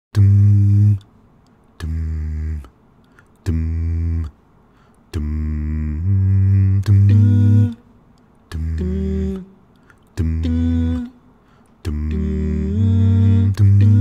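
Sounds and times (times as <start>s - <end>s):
man singing bass notes: 0.1s - 1.1s, 1.8s - 2.8s, 3.4s - 4.4s, 5.1s - 7.8s, 8.5s - 11.2s, 11.8s - 14.0s.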